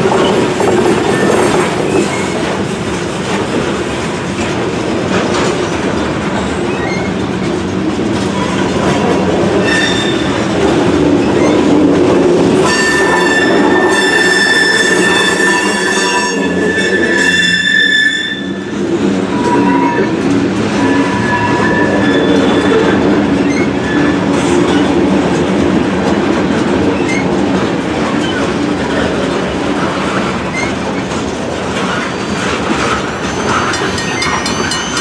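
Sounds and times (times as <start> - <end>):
train wheels rumbling on rails: 0.0 - 35.0
high wheel squeal: 9.6 - 10.4, 12.6 - 18.7, 19.3 - 24.2, 33.0 - 35.0.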